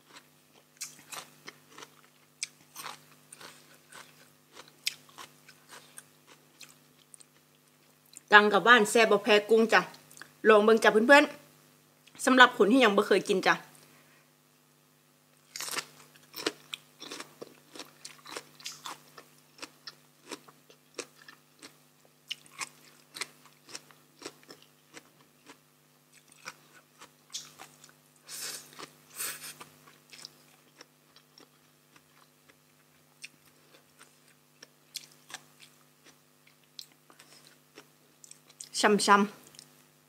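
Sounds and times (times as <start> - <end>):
person chewing crunchy vegetables: 0.0 - 8.3, 15.4 - 38.7
faint steady hum: 0.0 - 40.0.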